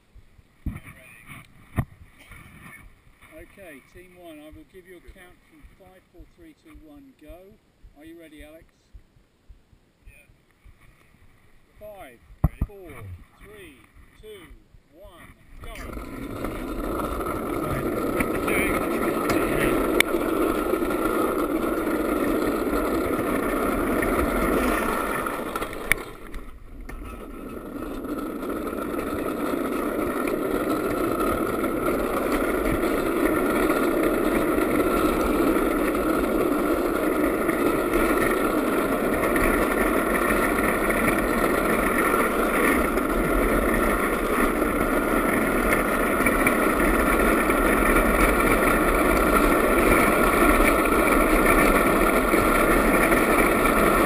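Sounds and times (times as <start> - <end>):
wheels rumbling on asphalt: 15.4 - 54.0.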